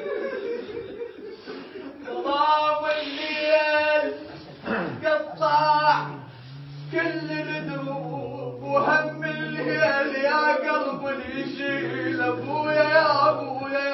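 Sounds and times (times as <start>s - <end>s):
men chanting a lament: 1.8s - 13.9s
low held note: 5.4s - 10.1s.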